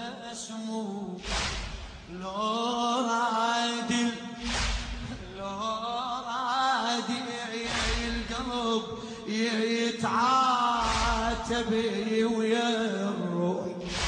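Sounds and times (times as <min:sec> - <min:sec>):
man chanting into a microphone: 0:00.0 - 0:14.0
heavy thumps: 0:01.2 - 0:02.2, 0:04.4 - 0:05.4, 0:07.7 - 0:08.6, 0:10.8 - 0:11.6.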